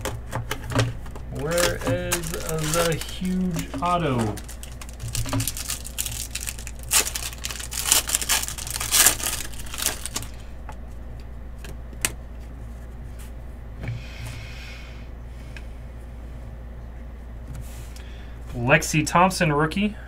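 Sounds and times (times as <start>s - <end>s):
foil wrapper crinkling and tearing: 1.2s - 10.5s
brief rustle of cards: 1.4s - 10.4s.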